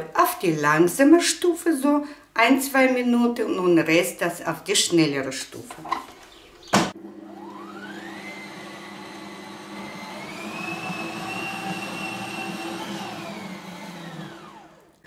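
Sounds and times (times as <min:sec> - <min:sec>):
stand mixer motor whining: 0:06.9 - 0:15.0.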